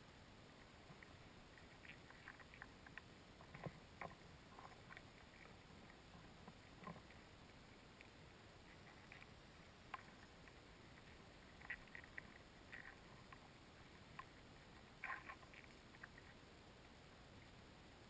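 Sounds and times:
soft clicks and crackles: 0:00.3 - 0:18.0.

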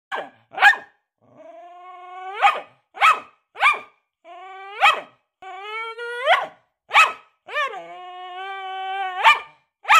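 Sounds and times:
dog barking: 0:00.1 - 0:01.0, 0:02.4 - 0:04.0, 0:04.8 - 0:05.2, 0:06.3 - 0:07.6, 0:09.2 - 0:09.9.

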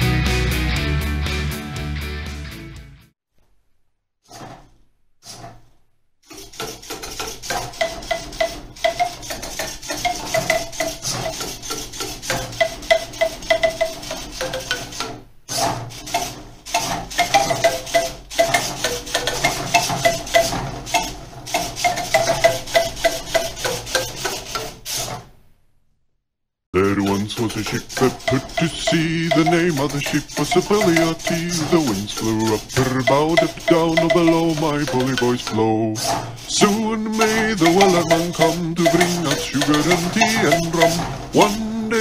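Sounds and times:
robot arms clattering: 0:04.3 - 0:25.4, 0:26.8 - 0:42.0
marimba notes: 0:28.2 - 0:35.8, 0:37.2 - 0:42.0.

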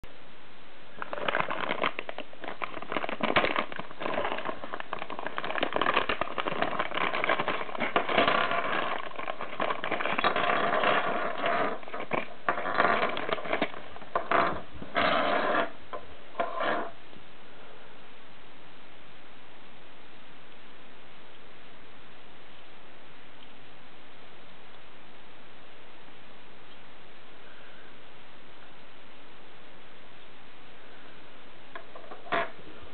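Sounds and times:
steady hiss: 0:00.0 - 0:32.9
plastic bag crinkling: 0:01.0 - 0:15.8.

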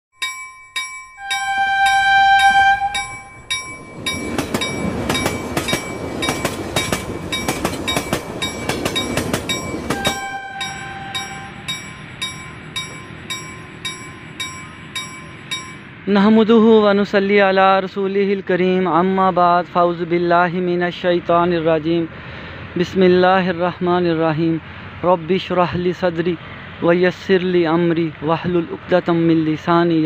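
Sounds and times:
bell ringing: 0:00.2 - 0:16.0
train wheels clattering: 0:00.3 - 0:16.0
sustained horn tone: 0:01.2 - 0:03.9, 0:09.9 - 0:12.7.

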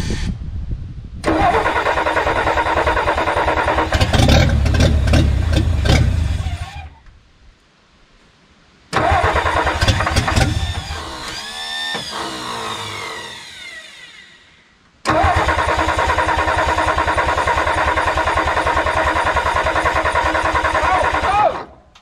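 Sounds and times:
starter cranking engine: 0:01.2 - 0:06.9, 0:09.0 - 0:13.8, 0:15.1 - 0:21.6.

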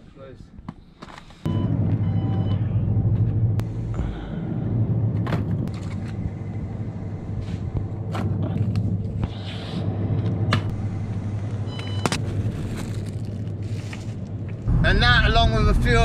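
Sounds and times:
car engine drone from inside: 0:01.5 - 0:16.0.

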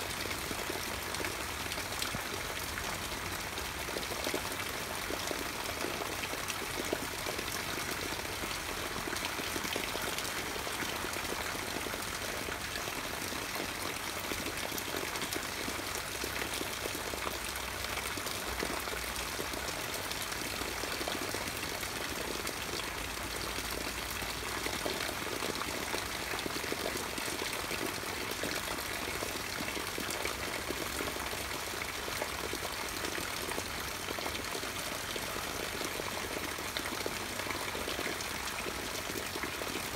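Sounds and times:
rain on leaves: 0:00.0 - 0:39.9.

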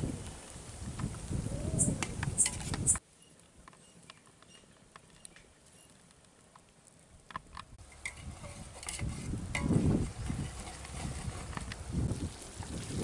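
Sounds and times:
wind rumbling on microphone: 0:00.0 - 0:03.0, 0:07.2 - 0:13.0
metal ladle scraping a pot: 0:07.8 - 0:11.8.

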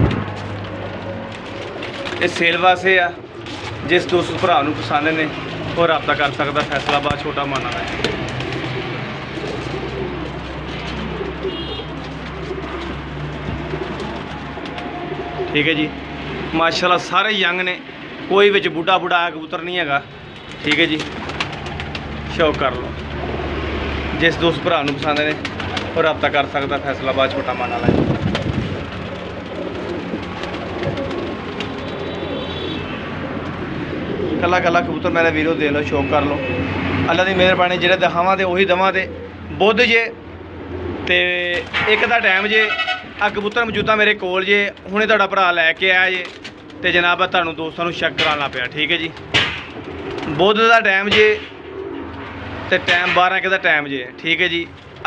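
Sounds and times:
pigeons cooing: 0:00.0 - 0:53.4, 0:54.1 - 0:55.0.

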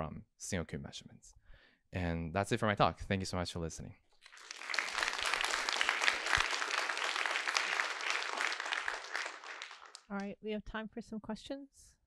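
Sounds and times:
audience applauding: 0:04.2 - 0:10.2.

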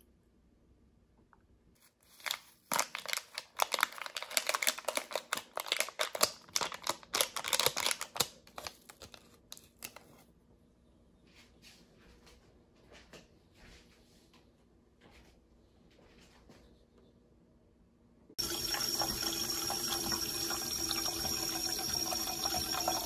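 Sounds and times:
plastic sachet crinkling: 0:01.8 - 0:10.2.

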